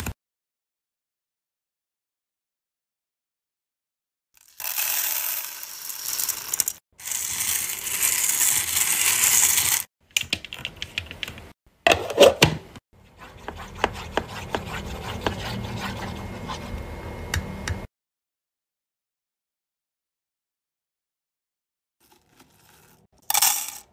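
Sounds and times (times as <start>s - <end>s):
wax beads poured into metal pot: 4.4s - 9.9s
spatula stirring melted wax: 13.0s - 16.7s
low hum: 14.3s - 17.9s.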